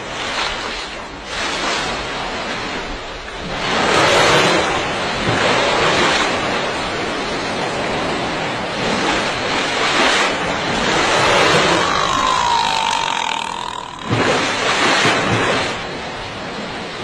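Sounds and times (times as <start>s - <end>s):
rushing surf: 0.0s - 17.0s
water splash: 8.8s - 17.0s.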